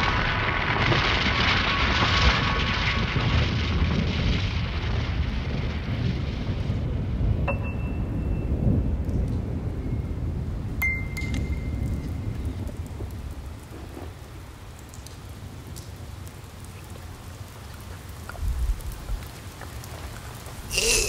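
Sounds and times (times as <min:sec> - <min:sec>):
thunder rumble: 0:00.0 - 0:21.0
raindrop ticks: 0:09.0 - 0:10.0, 0:10.8 - 0:20.8.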